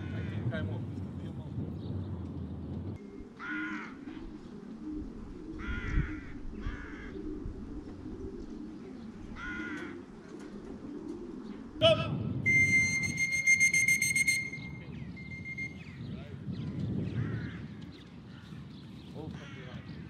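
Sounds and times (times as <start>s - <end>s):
crows cawing: 3.3s - 4.5s, 5.5s - 7.4s, 9.3s - 10.4s, 17.2s - 18.6s, 19.4s - 19.9s
high tone with fast ticking: 12.5s - 15.8s.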